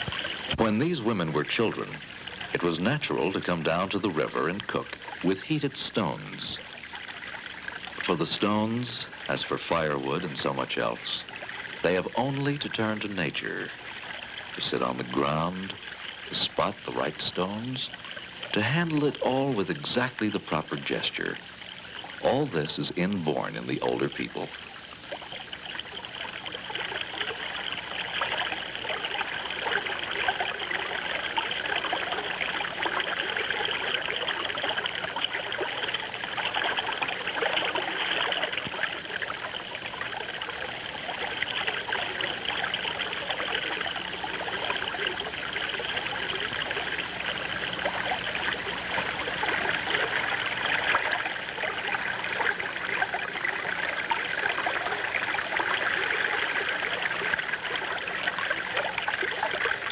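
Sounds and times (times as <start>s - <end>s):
river water trickling over stones: 0.0s - 59.9s.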